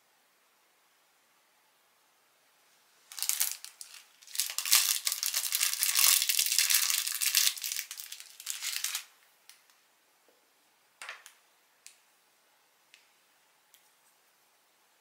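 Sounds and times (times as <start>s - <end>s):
crinkling handling noise: 3.0s - 9.2s.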